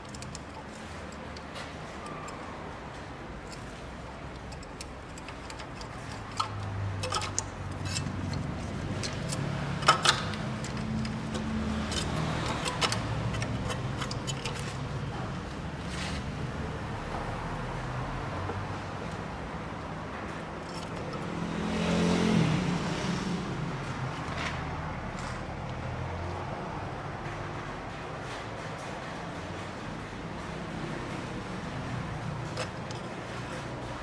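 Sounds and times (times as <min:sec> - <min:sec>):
ratchet wrench clicking: 0:00.0 - 0:02.4, 0:03.5 - 0:14.9.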